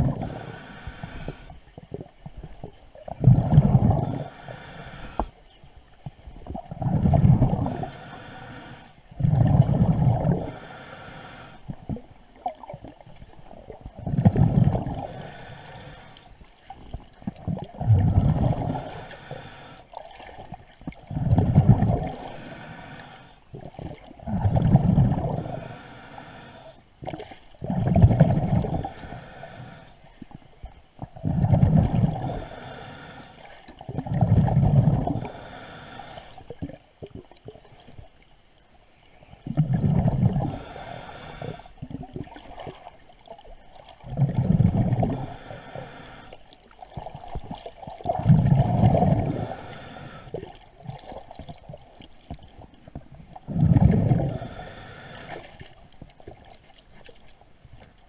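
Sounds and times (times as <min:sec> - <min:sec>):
breathing through a regulator: 0:00.0 - 0:01.8, 0:03.2 - 0:05.4, 0:06.8 - 0:11.9, 0:14.3 - 0:20.0, 0:21.1 - 0:30.5, 0:31.1 - 0:36.6, 0:39.0 - 0:41.9, 0:44.1 - 0:47.4, 0:48.2 - 0:51.2, 0:53.5 - 0:55.8
bubbles gurgling underwater: 0:01.8 - 0:04.3, 0:06.4 - 0:07.9, 0:09.2 - 0:10.6, 0:11.8 - 0:15.3, 0:16.8 - 0:19.0, 0:20.0 - 0:22.5, 0:23.5 - 0:25.6, 0:27.0 - 0:28.9, 0:31.0 - 0:32.5, 0:33.7 - 0:35.4, 0:39.4 - 0:40.8, 0:44.0 - 0:45.4, 0:46.7 - 0:49.6, 0:50.4 - 0:54.6.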